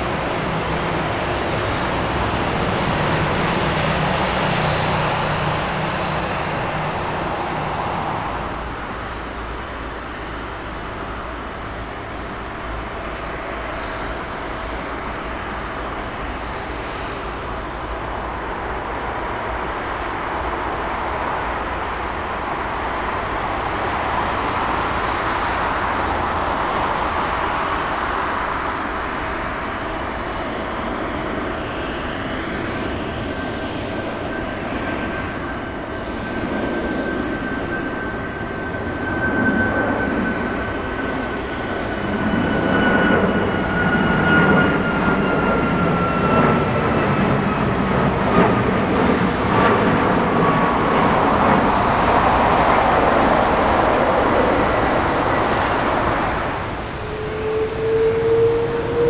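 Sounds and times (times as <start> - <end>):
jet airliner taxiing: 0.0 - 59.0.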